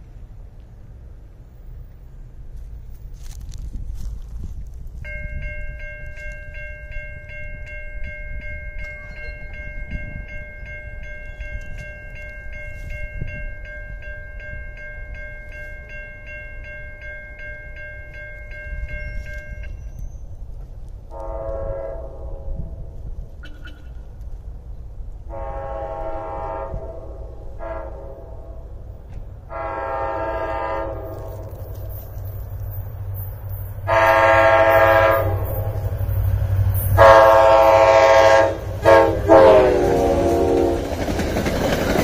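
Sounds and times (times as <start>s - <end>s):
crossing warning bell ringing: 5.0s - 20.4s, 29.5s - 42.0s
distant train horn: 21.1s - 22.9s, 25.3s - 32.0s, 33.8s - 41.3s.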